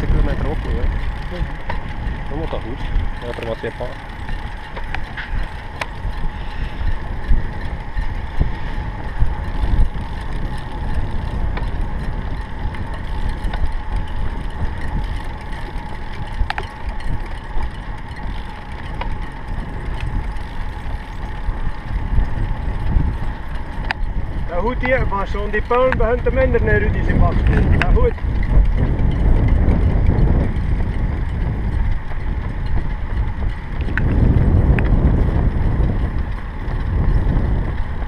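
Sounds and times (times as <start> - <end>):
tyre noise on asphalt: 0.0 - 38.0
wind rumbling on microphone: 0.0 - 38.0
small clicks: 3.2 - 6.6, 9.8 - 21.4, 23.8 - 24.1.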